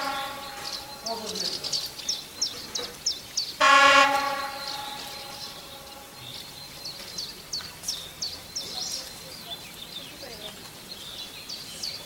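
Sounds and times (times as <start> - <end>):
railbus horn blast: 0.0 - 1.0, 3.6 - 6.1
bird chirping: 0.0 - 12.0.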